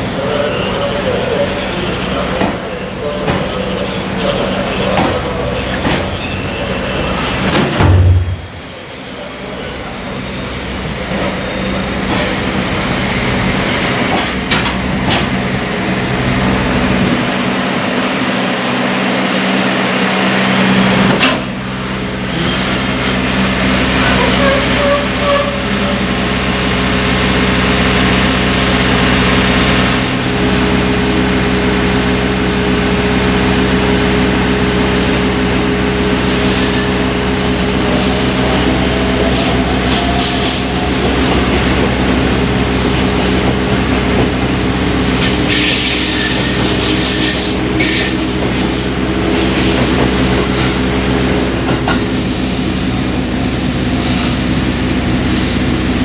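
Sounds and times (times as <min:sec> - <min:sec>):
electric train steady tone: 0:00.0 - 0:56.0
freight train rolling and braking: 0:00.0 - 0:56.0
wheel and brake squeal: 0:09.0 - 0:14.4, 0:22.3 - 0:26.2, 0:36.2 - 0:37.1, 0:37.9 - 0:41.6, 0:42.7 - 0:43.7, 0:45.0 - 0:56.0.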